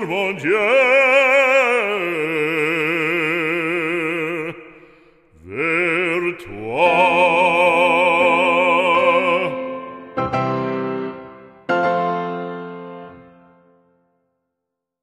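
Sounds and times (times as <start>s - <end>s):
operatic voice singing: 0.0s - 10.2s.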